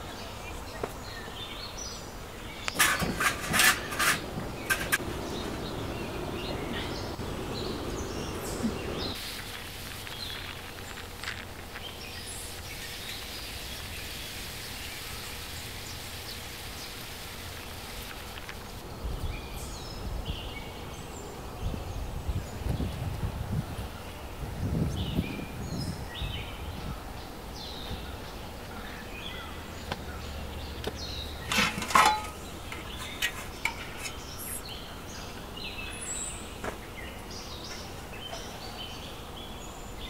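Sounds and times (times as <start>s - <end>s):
steady background hiss: 0.0s - 40.0s
low rumbling: 4.2s - 9.2s
bird chirps: 4.6s - 9.2s.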